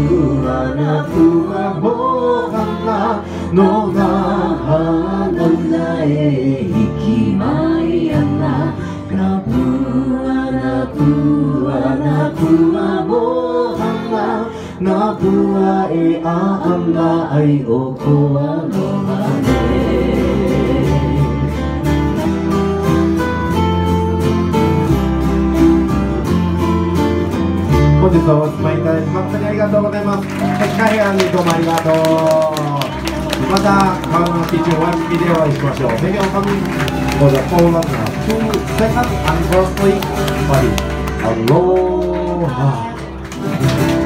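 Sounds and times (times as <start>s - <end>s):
person singing: 0.0s - 22.3s, 31.7s - 43.2s
strummed guitar and ukuleles: 0.0s - 44.0s.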